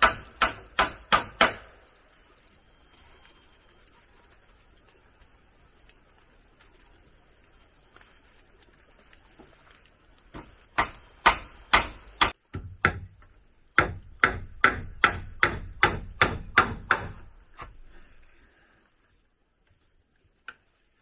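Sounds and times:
hand tool striking wood: 0:00.0 - 0:01.7, 0:10.3 - 0:17.7.

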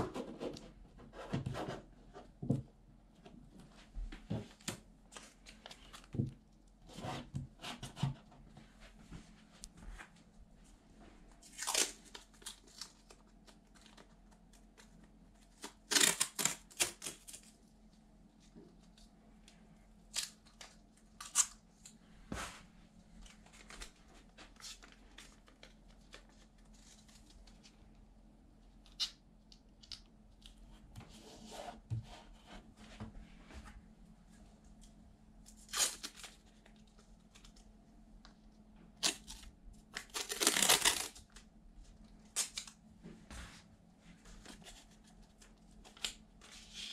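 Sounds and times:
vinyl sticker ripping and crinkling: 0:15.5 - 0:17.5, 0:35.6 - 0:36.6, 0:39.0 - 0:41.4.

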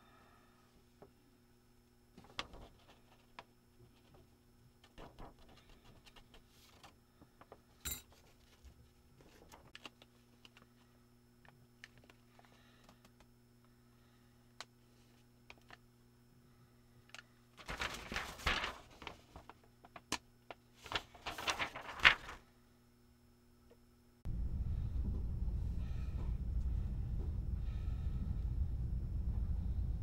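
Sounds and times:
steady low hum: 0:00.0 - 0:05.8, 0:06.8 - 0:30.0
tools clinking on workbench: 0:07.8 - 0:08.1.

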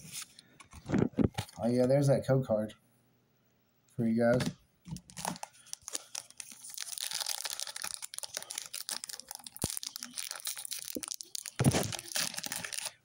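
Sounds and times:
foil wrapper crinkling and tearing: 0:05.0 - 0:13.0.

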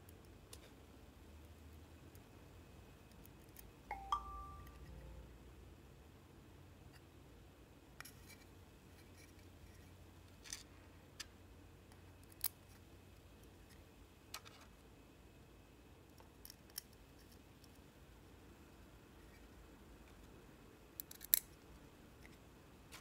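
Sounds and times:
faint low hum: 0:00.0 - 0:23.0
small parts clicking and tapping: 0:03.0 - 0:03.7, 0:08.0 - 0:12.8, 0:13.4 - 0:14.8, 0:16.0 - 0:17.8, 0:21.0 - 0:23.0.

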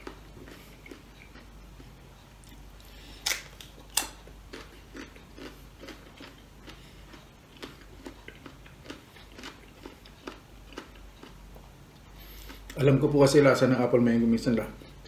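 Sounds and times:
biting crunches: 0:00.0 - 0:11.4
crunchy chewing: 0:00.0 - 0:12.8.

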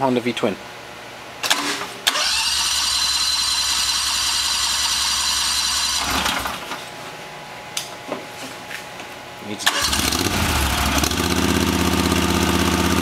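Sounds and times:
electric starter cranking engine: 0:01.4 - 0:06.7, 0:09.6 - 0:13.0.

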